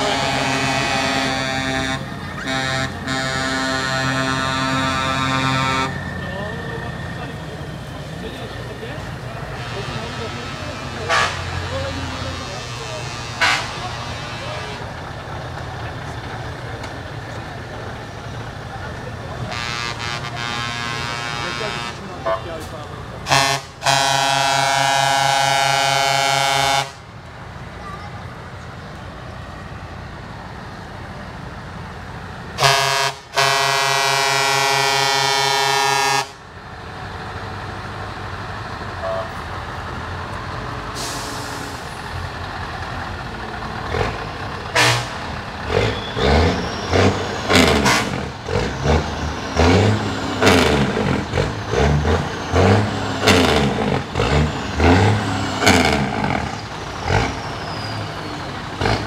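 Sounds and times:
truck air horn blasts: 0:00.0 - 0:06.1, 0:09.5 - 0:14.8, 0:19.4 - 0:22.6, 0:23.2 - 0:27.1, 0:32.6 - 0:36.4, 0:39.0 - 0:39.4, 0:44.7 - 0:51.0
truck engines rumbling: 0:00.0 - 0:59.0.

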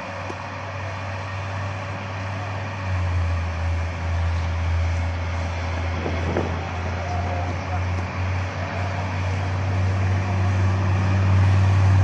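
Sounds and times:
tank diesel engine revving: 0:00.0 - 0:12.0.

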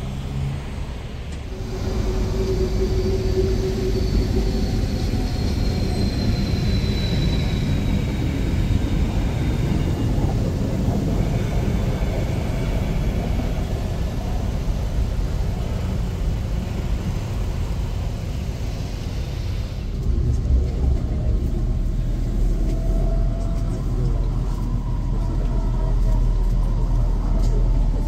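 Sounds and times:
street traffic rumble: 0:00.0 - 0:28.0
train moving off with hiss: 0:00.0 - 0:28.0
steady low rumble: 0:08.0 - 0:28.0.

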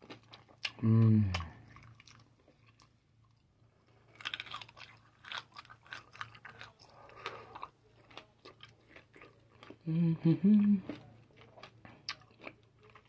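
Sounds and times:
hard candy crunching: 0:03.7 - 0:09.9, 0:10.8 - 0:13.0.

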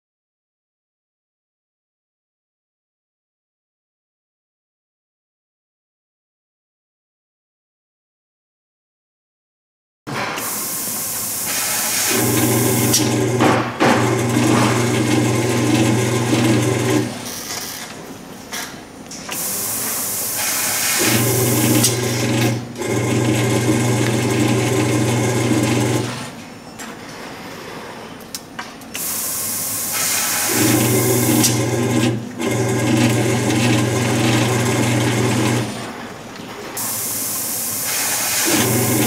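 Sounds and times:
conveyor drive motor humming: 0:10.8 - 0:18.0, 0:19.0 - 0:26.4, 0:29.1 - 0:39.0.

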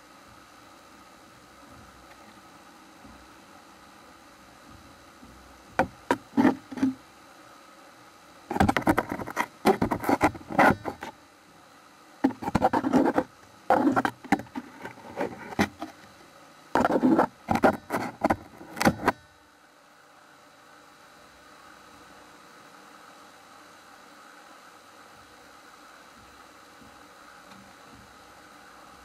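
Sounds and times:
stick scraping and tapping camera: 0:05.8 - 0:07.0, 0:08.5 - 0:11.2, 0:12.2 - 0:16.1, 0:16.8 - 0:19.2.

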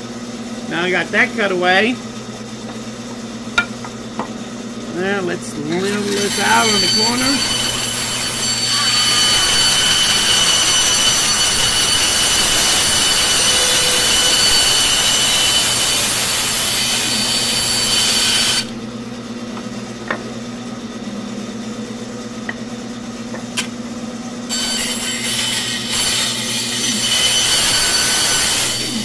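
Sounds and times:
saw motor humming: 0:04.9 - 0:19.1, 0:24.5 - 0:29.0
bandsaw cutting wood: 0:05.0 - 0:18.8, 0:24.5 - 0:29.0.

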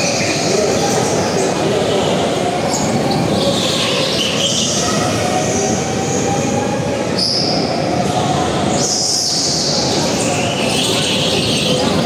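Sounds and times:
high-pitched tyre squeals: 0:07.1 - 0:07.8
go-kart engine: 0:08.7 - 0:12.0.

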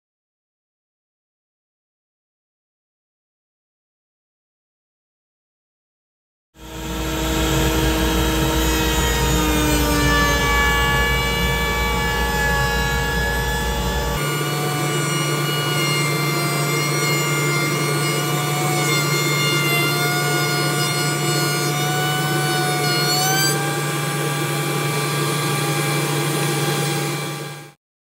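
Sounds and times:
router table whining: 0:06.6 - 0:27.8.

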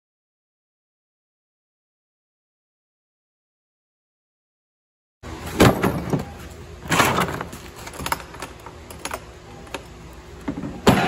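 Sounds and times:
tools clattering: 0:05.5 - 0:09.9.

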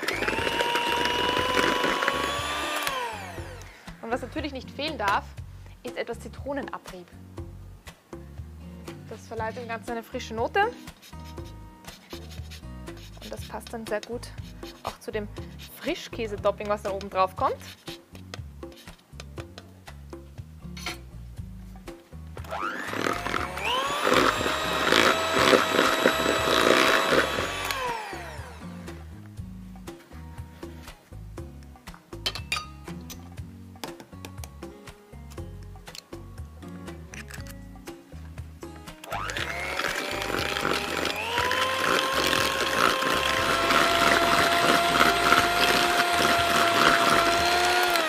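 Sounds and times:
electric hand mixer running: 0:00.0 - 0:04.0, 0:22.5 - 0:28.9, 0:39.1 - 0:48.0.

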